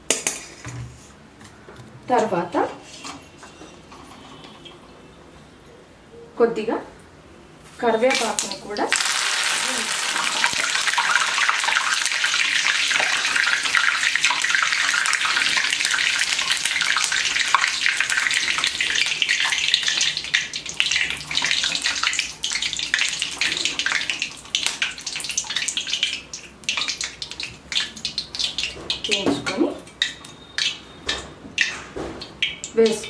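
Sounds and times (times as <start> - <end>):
leaves sizzling in hot oil: 8.0 - 29.2
crackles and pops of frying: 8.0 - 33.0.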